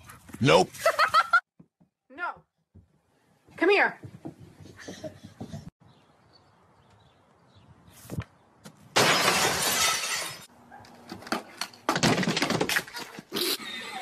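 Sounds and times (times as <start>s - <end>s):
glass shattering: 9.0s - 10.5s
pogo stick and metal table crashing: 11.2s - 13.0s.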